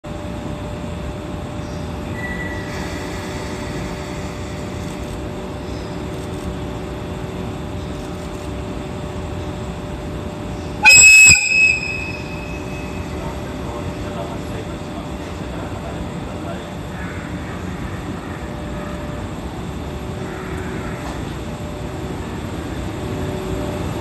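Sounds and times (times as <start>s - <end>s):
electric locomotive humming: 0.1s - 24.0s
shrill locomotive air whistle: 10.8s - 13.4s.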